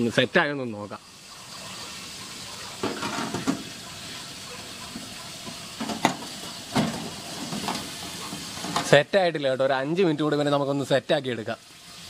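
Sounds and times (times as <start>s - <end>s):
steady hiss: 0.0s - 12.0s.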